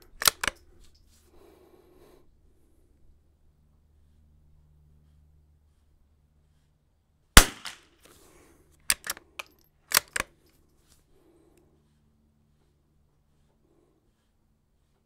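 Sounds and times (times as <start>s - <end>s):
rifle bolt clicking: 0.1s - 0.7s, 8.9s - 10.3s
rifle shot: 7.4s - 7.8s.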